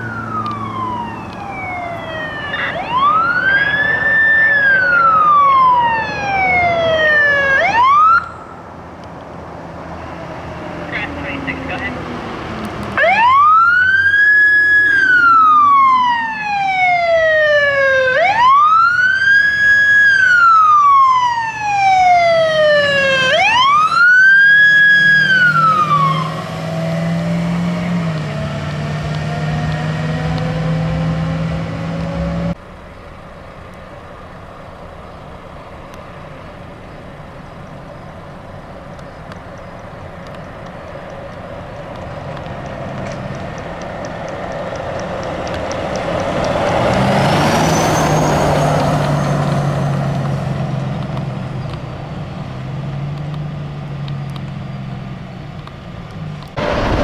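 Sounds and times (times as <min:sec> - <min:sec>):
siren wailing: 0:00.0 - 0:08.6, 0:12.9 - 0:28.0
road noise rumble: 0:00.0 - 0:57.0
truck engine running: 0:32.5 - 0:57.0.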